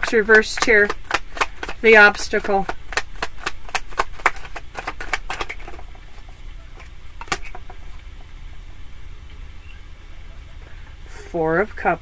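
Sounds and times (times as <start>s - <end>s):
cards being shuffled: 0.0s - 6.0s, 6.8s - 7.7s.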